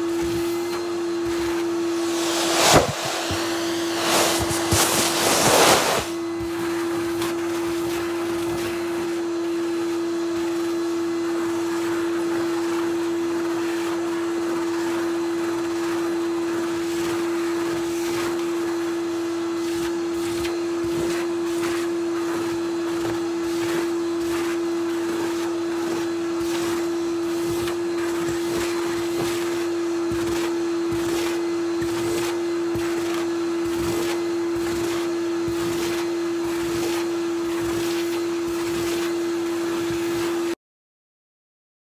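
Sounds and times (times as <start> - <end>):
vacuum cleaner running: 0.0 - 40.6.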